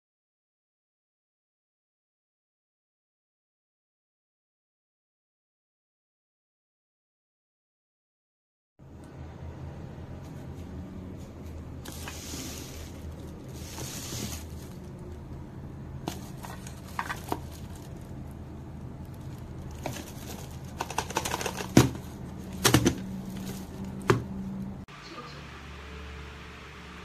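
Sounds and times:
low steady hum: 0:08.8 - 0:27.0
plastic wrapping rustling: 0:11.4 - 0:15.2, 0:16.0 - 0:24.0.

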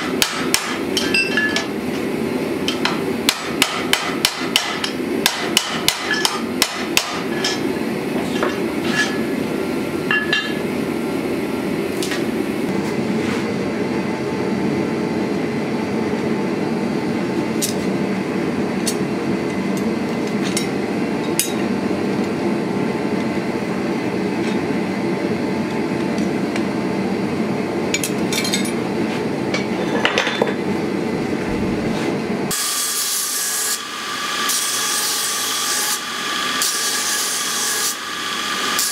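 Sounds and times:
hammer striking hot steel: 0:00.0 - 0:01.8, 0:02.6 - 0:09.3, 0:10.1 - 0:10.7, 0:21.3 - 0:21.6
steady rushing noise: 0:30.8 - 0:32.5.

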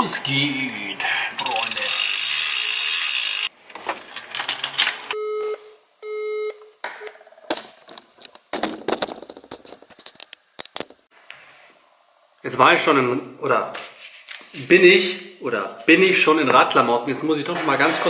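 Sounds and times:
bicycle drivetrain rattle: 0:01.4 - 0:04.8
phone busy signal beeps: 0:05.2 - 0:06.7.

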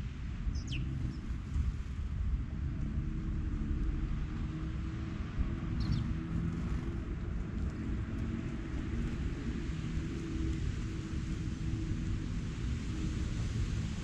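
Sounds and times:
distant traffic rumble: 0:00.0 - 0:14.0
faint engine hum: 0:00.0 - 0:14.0
bird chirps: 0:00.5 - 0:01.2, 0:05.8 - 0:06.1.

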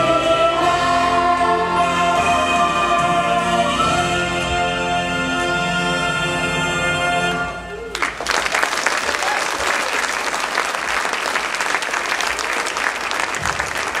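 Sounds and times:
audience applause: 0:07.9 - 0:14.0.

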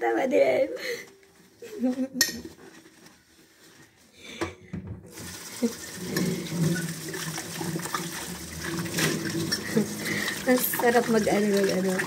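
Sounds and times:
tap water running into sink: 0:05.1 - 0:12.0.

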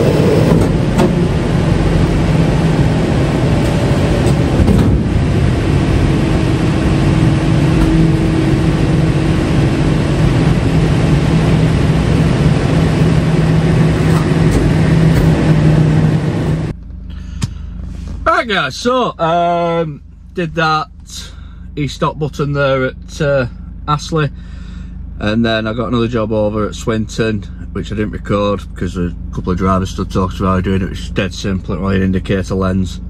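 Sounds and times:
higher steady tone: 0:00.0 - 0:17.1.

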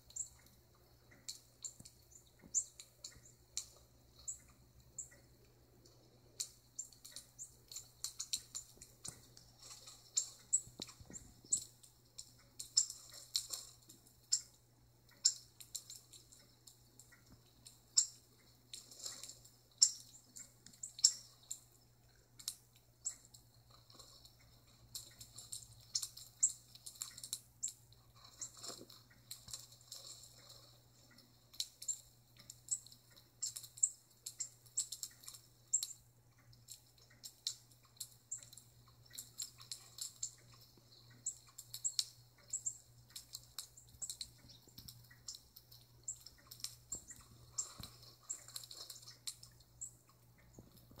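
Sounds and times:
faint steady hum: 0:00.0 - 0:51.0
small birds chirping: 0:00.0 - 0:51.0.

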